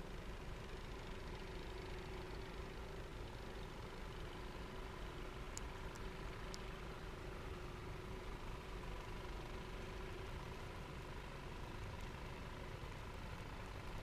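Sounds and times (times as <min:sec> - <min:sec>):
faint mechanical hum: 0:00.0 - 0:14.0
faint ticks: 0:03.4 - 0:07.1, 0:11.6 - 0:14.0.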